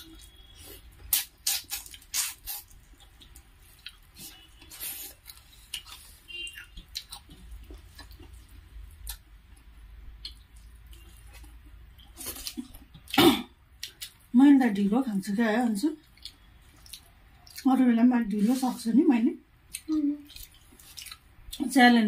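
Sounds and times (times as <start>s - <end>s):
mouths chewing: 16.0s - 17.8s, 19.7s - 21.7s.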